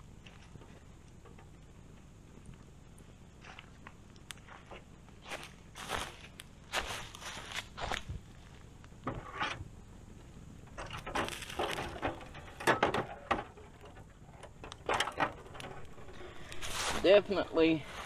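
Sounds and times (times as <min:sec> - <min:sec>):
handling clicks and knocks: 0:10.7 - 0:16.7.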